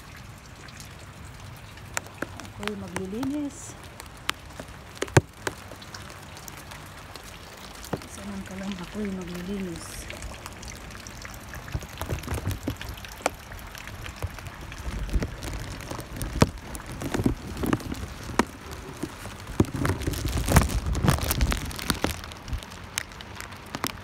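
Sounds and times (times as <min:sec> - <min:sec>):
rain falling: 0:00.0 - 0:24.0
drops tapping: 0:01.9 - 0:03.6
low rumbling: 0:07.8 - 0:24.0.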